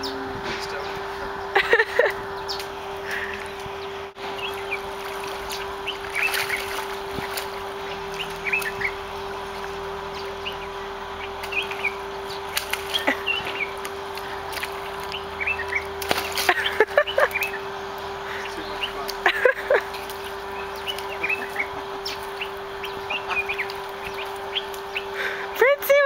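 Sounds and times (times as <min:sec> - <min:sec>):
small birds chirping: 0:00.0 - 0:25.6
low hum: 0:00.0 - 0:26.0
splashing in muddy water: 0:04.4 - 0:09.8, 0:11.4 - 0:17.6.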